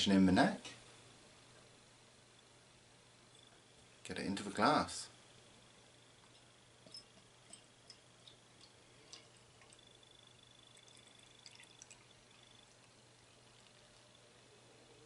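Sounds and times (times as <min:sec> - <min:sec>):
beer pouring into a glass: 0:09.1 - 0:14.2.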